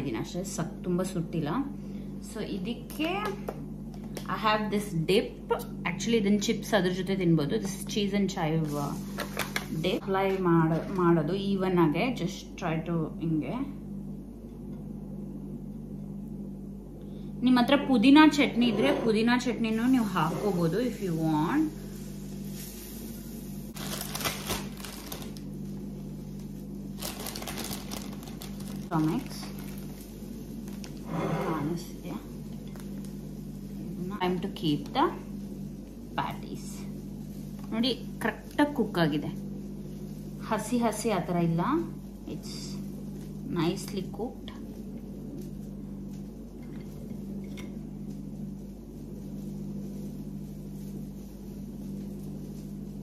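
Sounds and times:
steady low hum: 0.0 - 53.0
plastic bag crinkling: 23.7 - 25.6, 26.9 - 31.0.

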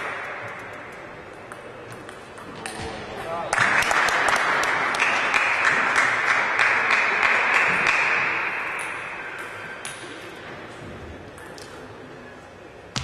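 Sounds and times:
table tennis ball bouncing: 0.0 - 3.6
hand clapping: 3.5 - 8.3.

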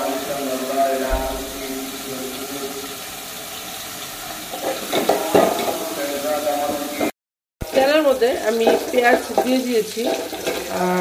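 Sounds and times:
onion sizzling in hot oil: 0.0 - 11.0.

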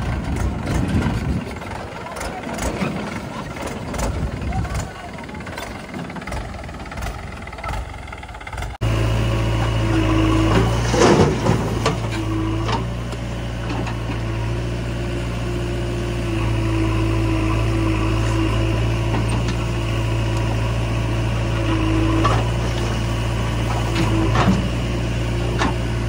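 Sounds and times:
backhoe engine running: 0.0 - 26.0
diesel engines idling: 0.0 - 26.0
soil clattering into steel trolley: 10.5 - 12.9.

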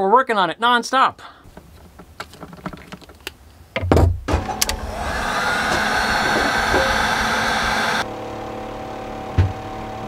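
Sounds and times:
heat gun blowing: 4.6 - 8.0.

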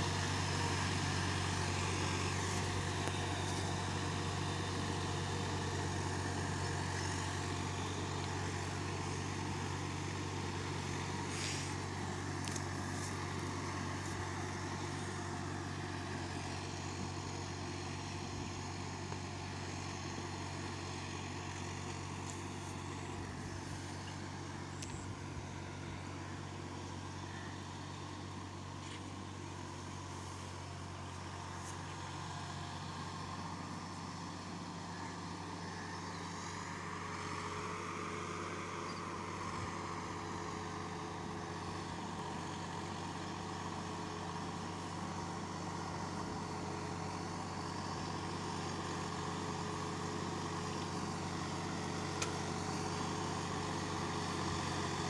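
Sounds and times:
tractor diesel engine running: 0.0 - 55.0.

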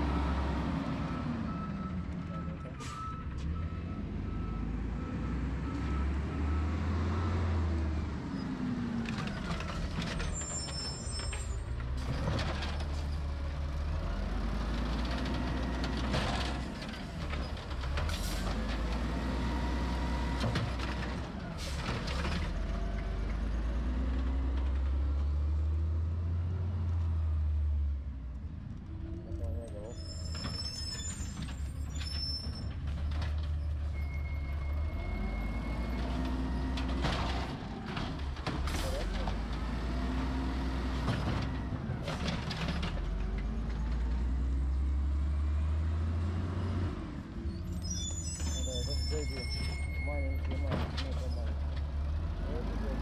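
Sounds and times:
garbage truck engine revving: 34.5 - 47.8
thin high beep: 48.1 - 50.7.

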